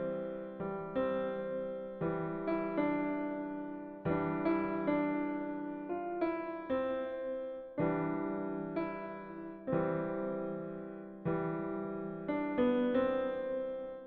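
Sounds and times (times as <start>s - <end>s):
slow piano chords: 0.0s - 14.0s.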